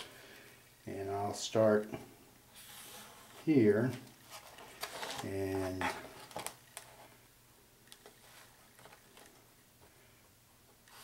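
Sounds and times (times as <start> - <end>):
metal sliding across cardboard: 2.5 - 6.2.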